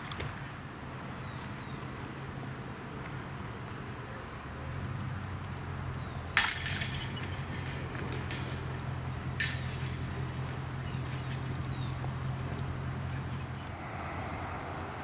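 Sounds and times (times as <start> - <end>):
disc crashing into basket chains: 6.4 - 11.9.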